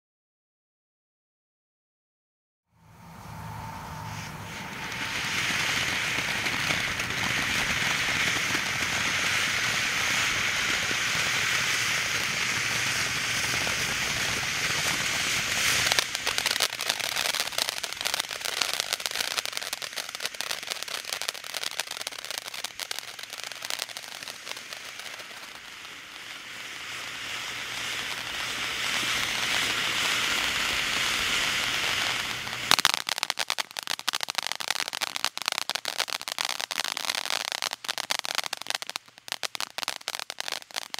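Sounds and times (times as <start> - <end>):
fireworks crackling: 2.8 - 40.9
fireworks fountain hissing: 2.8 - 40.9.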